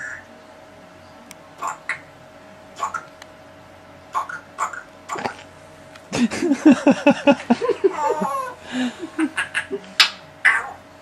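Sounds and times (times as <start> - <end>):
person laughing: 6.1 - 10.0.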